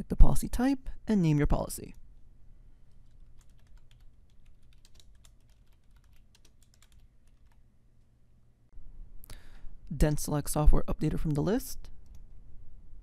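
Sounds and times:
typing on keyboard: 2.9 - 7.6.

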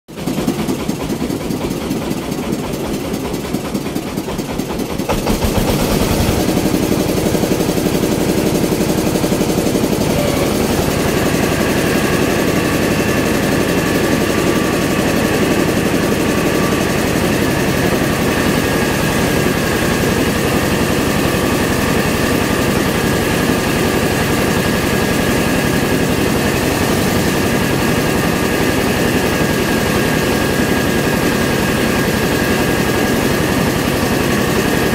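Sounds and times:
rice mill engine running: 0.1 - 34.9
steady high whine: 6.7 - 33.4.

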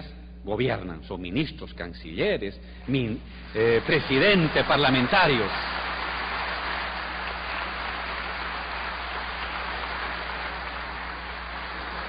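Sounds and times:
large audience applauding: 3.4 - 12.0.

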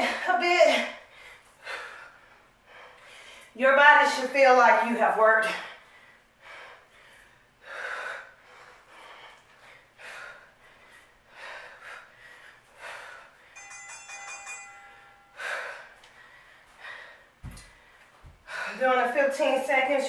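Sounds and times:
woman breathing hard: 1.0 - 3.6, 5.6 - 18.8.

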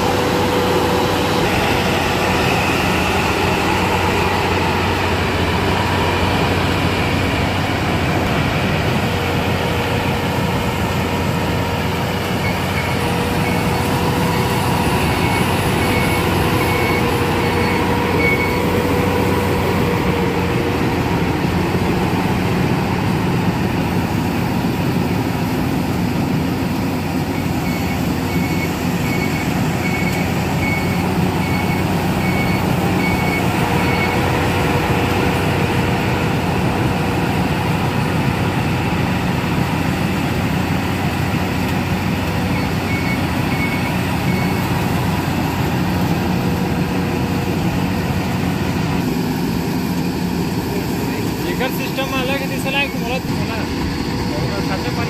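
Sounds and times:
combine harvester drone: 0.0 - 55.0
short beeps: 12.4 - 18.8.

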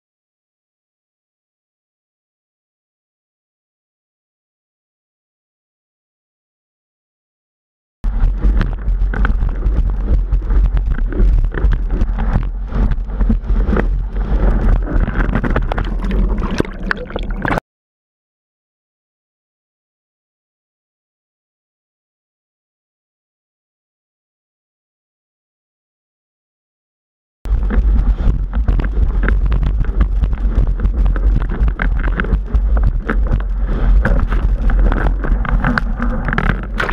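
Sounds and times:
wind buffeting microphone: 8.0 - 16.8, 27.5 - 36.9
board slapping water: 8.1 - 17.6, 27.5 - 36.9
water rushing and spraying: 9.9 - 17.6.

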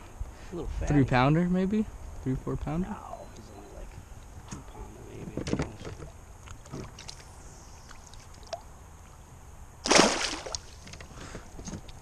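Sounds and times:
fish splashing at water surface: 9.8 - 10.9
water sloshing: 9.8 - 11.1.

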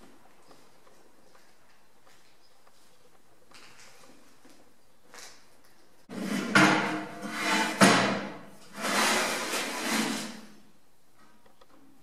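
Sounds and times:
metal plate scraping on metal: 6.1 - 10.6.

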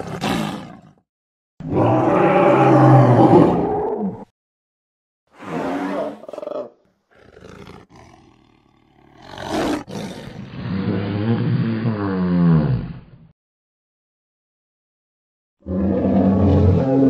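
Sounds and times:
dinosaur roar: 1.6 - 4.3, 5.4 - 13.1, 15.6 - 17.0
rough growl: 5.4 - 13.2.

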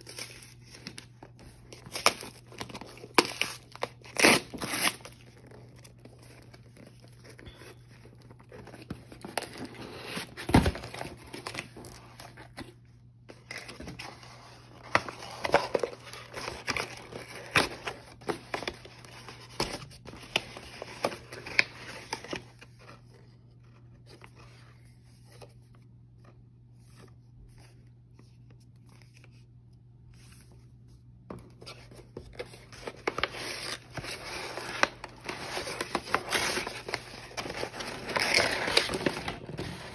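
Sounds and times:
tissue paper crinkling and tearing: 0.0 - 7.5, 32.5 - 39.9.

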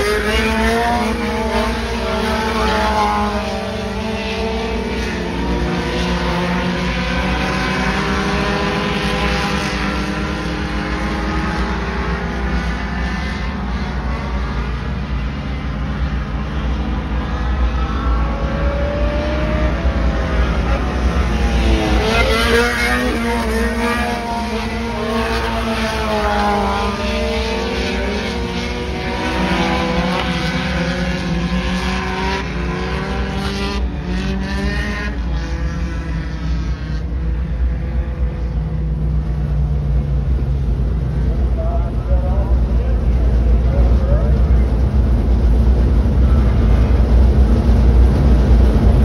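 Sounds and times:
race car engines revving: 0.0 - 49.0.

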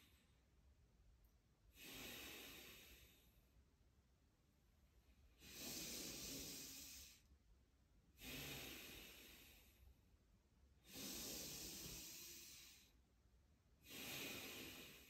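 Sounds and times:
man breathing deeply: 1.8 - 3.5, 5.3 - 7.3, 8.2 - 10.0, 10.8 - 13.0, 13.8 - 15.0.

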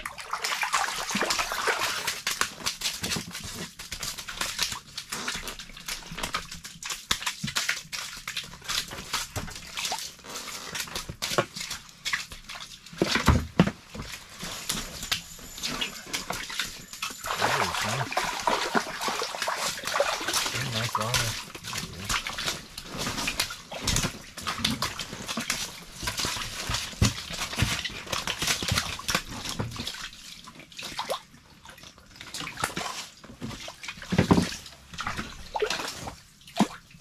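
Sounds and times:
water splashing: 0.0 - 37.0.

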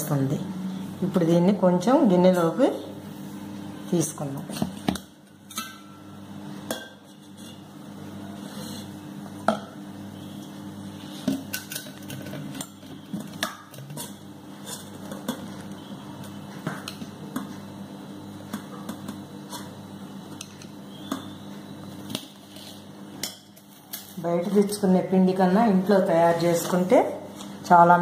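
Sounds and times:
steady low hum: 0.0 - 28.0
spoon scraping metal bowls: 6.9 - 9.0, 11.0 - 15.9.

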